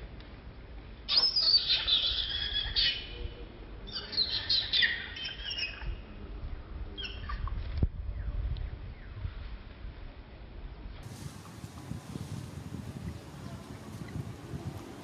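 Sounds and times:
birds chirping: 1.1s - 7.5s.

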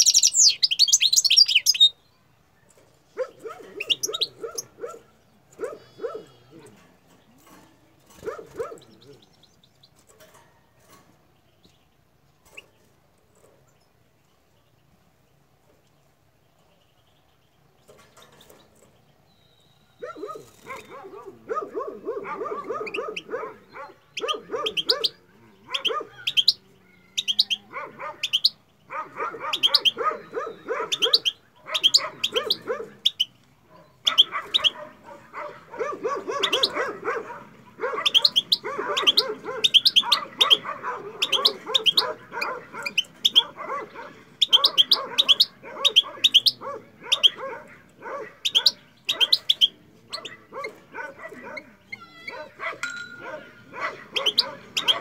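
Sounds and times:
goldfinch twittering: 0.0s - 1.9s, 3.8s - 4.7s, 29.5s - 33.3s, 38.0s - 40.6s, 41.2s - 43.6s, 44.4s - 47.4s, 54.1s - 55.0s.

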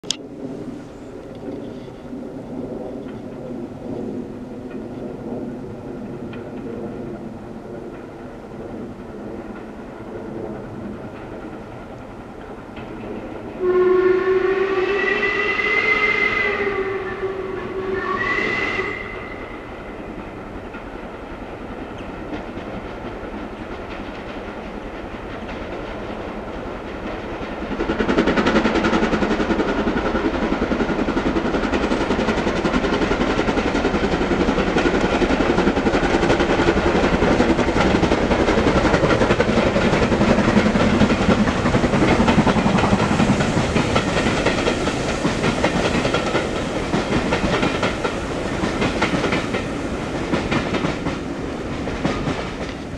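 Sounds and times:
train passing close by: 0.0s - 52.9s
steam locomotive whistle: 13.6s - 20.0s.

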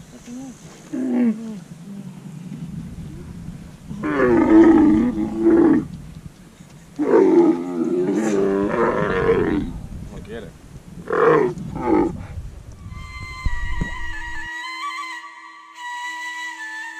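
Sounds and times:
camel bellowing: 3.0s - 5.9s, 7.0s - 9.7s.

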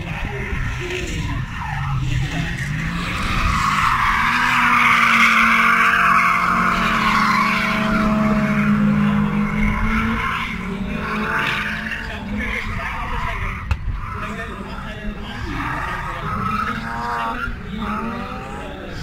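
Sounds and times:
engines at high revs: 0.0s - 13.2s
loud tyre squeal: 0.5s - 14.2s.

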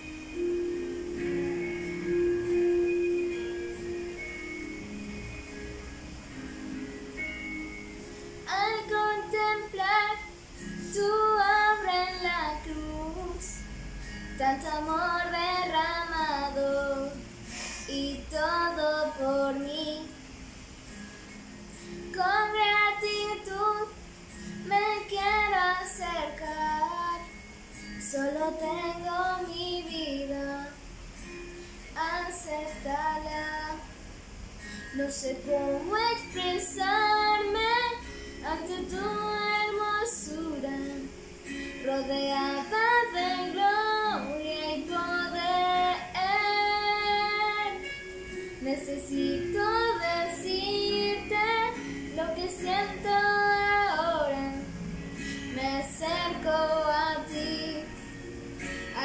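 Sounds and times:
girl singing: 8.4s - 13.7s, 14.4s - 17.3s, 17.9s - 20.2s, 22.1s - 27.4s, 28.0s - 30.9s, 32.0s - 33.9s, 34.9s - 41.2s, 41.8s - 48.0s, 48.6s - 54.8s, 55.5s - 58.0s.

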